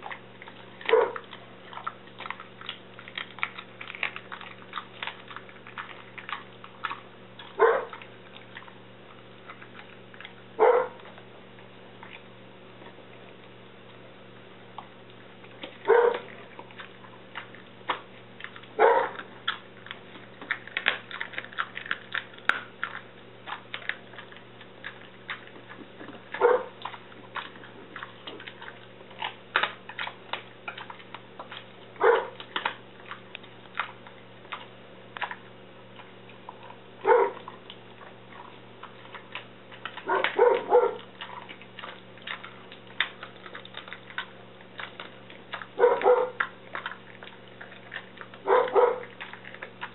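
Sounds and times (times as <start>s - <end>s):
dog gnawing a bone: 0.0s - 49.9s
dog barking: 0.8s - 1.3s, 7.4s - 8.0s, 10.6s - 11.1s, 15.8s - 16.4s, 18.8s - 19.3s, 26.3s - 26.8s, 32.0s - 32.4s, 37.0s - 37.6s, 40.0s - 41.4s, 45.8s - 46.5s, 48.4s - 49.2s.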